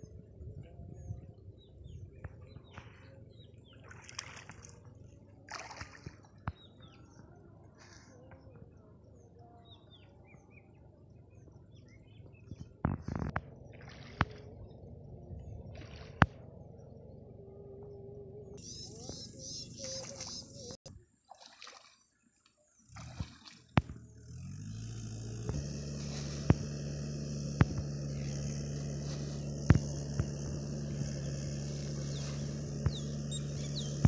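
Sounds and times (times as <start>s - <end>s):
wind rumble on microphone: 0.0s - 3.4s, 12.2s - 19.4s
small birds chirping: 16.7s - 20.9s, 24.6s - 34.0s.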